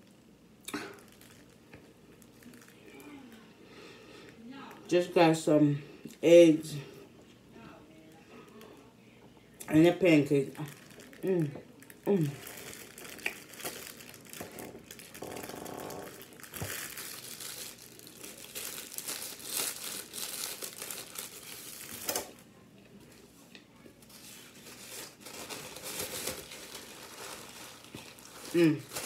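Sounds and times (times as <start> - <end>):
plastic wrapper crinkling: 0.0 - 3.4, 9.8 - 22.5, 24.0 - 29.0.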